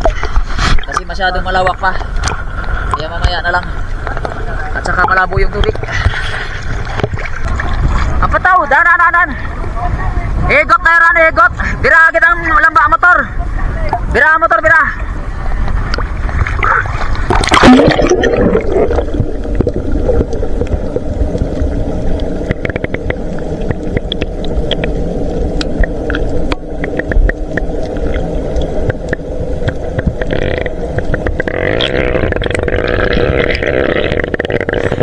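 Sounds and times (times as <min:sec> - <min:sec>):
underwater clicks and bubbling: 0:00.0 - 0:08.5, 0:15.6 - 0:35.0
boat motor drone underwater: 0:00.0 - 0:35.0
splash into water: 0:16.5 - 0:19.2.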